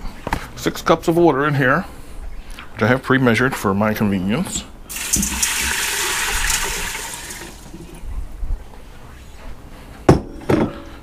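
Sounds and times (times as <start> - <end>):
water pouring into metal pot: 4.9 - 8.0.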